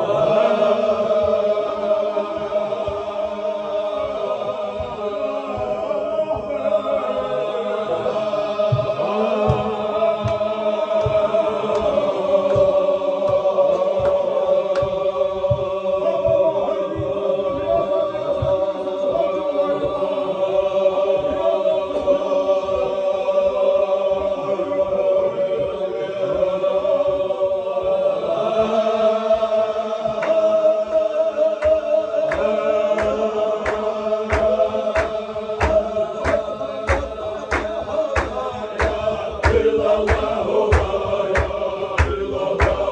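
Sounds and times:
men chanting in unison: 0.0s - 42.9s
sharp claps: 8.2s - 15.7s, 30.0s - 42.9s.

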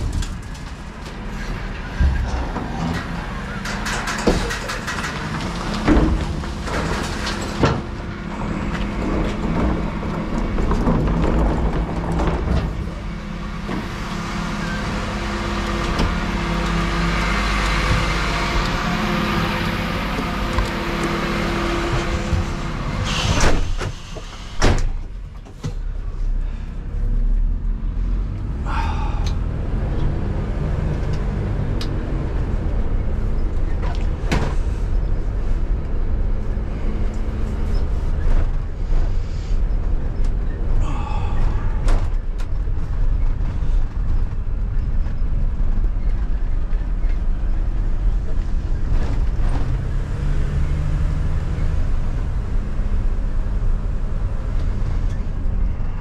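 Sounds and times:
diesel truck engine running: 0.0s - 56.0s
small rattles and clicks: 3.0s - 7.6s.

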